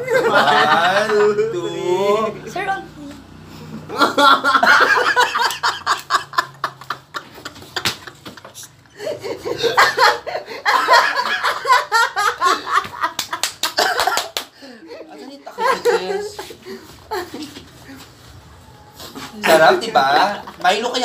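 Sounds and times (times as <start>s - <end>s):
group of people laughing: 0.0s - 1.7s, 3.7s - 18.0s.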